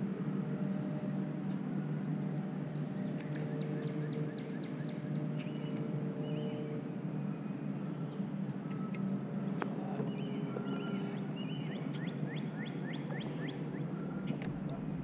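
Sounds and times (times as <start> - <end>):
low motor hum: 0.0 - 15.0
short high bird chirps: 10.2 - 10.7.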